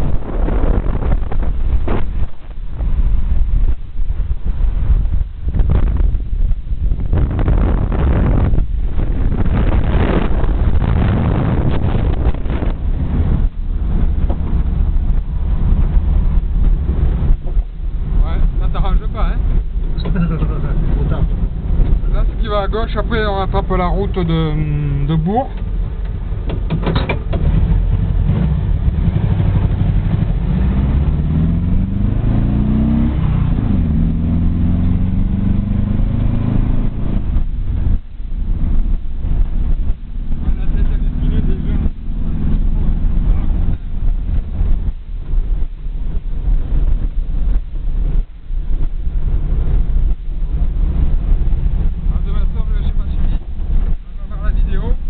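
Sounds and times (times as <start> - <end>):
car engine: 0.0 - 55.0
wind rushing on microphone: 0.0 - 55.0.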